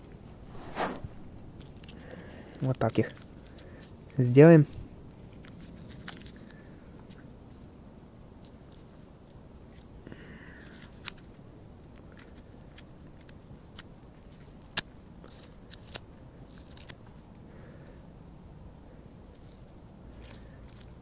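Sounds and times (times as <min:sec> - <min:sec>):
gloved hands rustling: 0:00.2 - 0:04.2.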